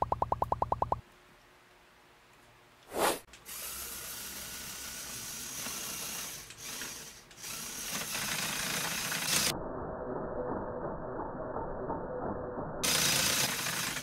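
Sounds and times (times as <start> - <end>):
toy motor and gears whirring: 3.4 - 9.5, 12.8 - 14.0.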